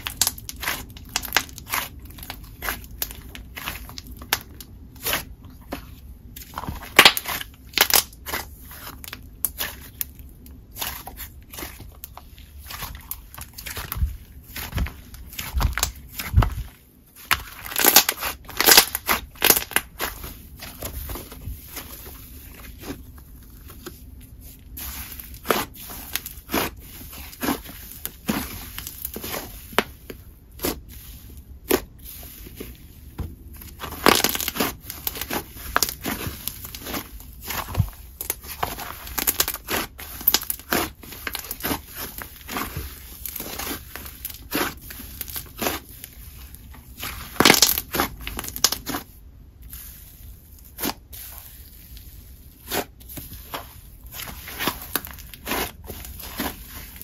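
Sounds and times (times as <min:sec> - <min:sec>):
slime crackling: 0:00.0 - 0:57.0.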